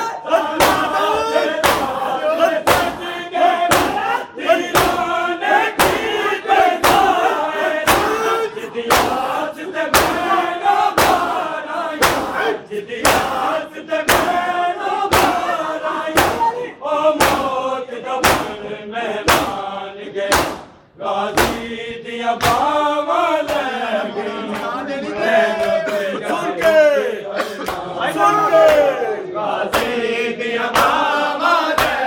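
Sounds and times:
hands slapping chests in unison: 0.0 - 16.6, 17.2 - 17.6, 18.2 - 19.7, 20.3 - 22.8, 23.4 - 23.8, 27.6 - 29.0, 29.6 - 32.0
men chanting: 0.0 - 32.0.

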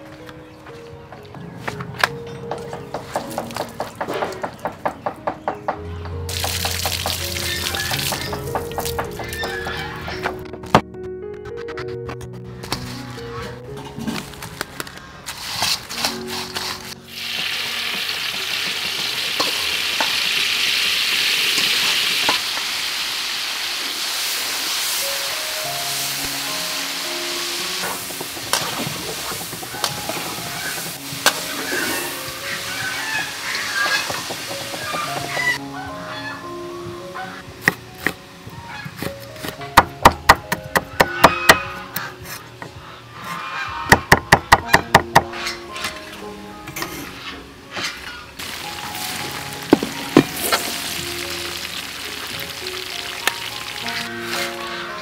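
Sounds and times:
crickets deep-frying in hot oil: 17.1 - 25.3, 48.4 - 54.2.

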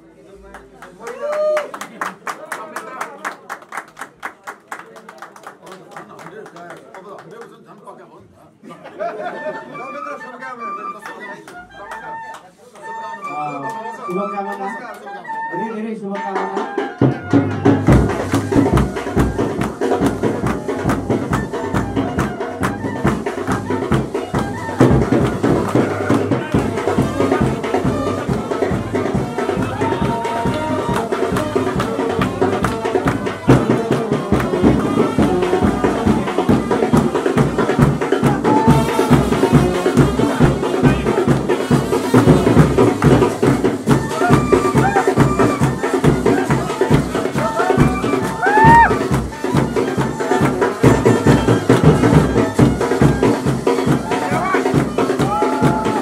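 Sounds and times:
folk song: 8.8 - 56.0
steady drum beat: 16.2 - 56.0.

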